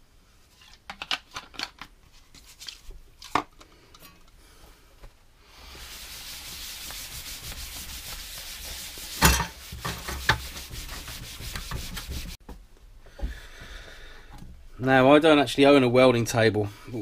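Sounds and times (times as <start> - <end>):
cloth rag rubbing on workbench: 5.6 - 12.4.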